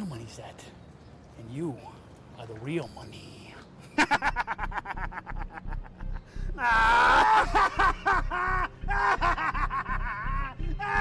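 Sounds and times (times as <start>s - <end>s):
faint low repeating pulse: 4.3s - 6.6s.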